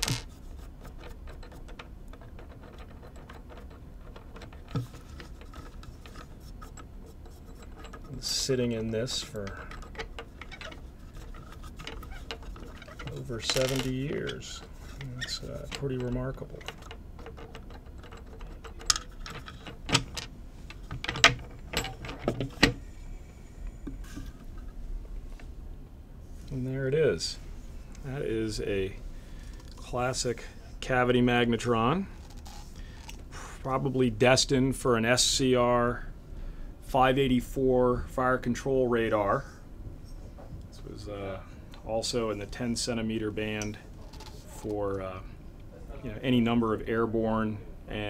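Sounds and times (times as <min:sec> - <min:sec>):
wing nuts clicking and scraping: 0:00.0 - 0:25.5, 0:32.2 - 0:33.2.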